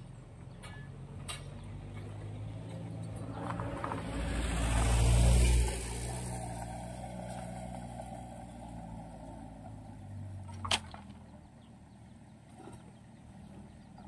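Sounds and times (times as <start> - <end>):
minibus driving past: 0.3 - 10.5.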